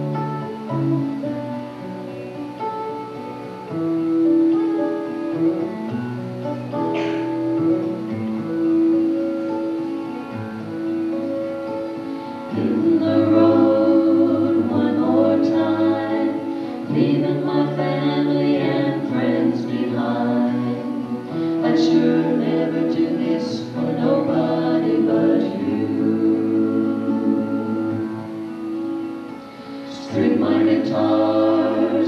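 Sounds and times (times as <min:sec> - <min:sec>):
quartet singing in harmony: 0:12.1 - 0:32.0.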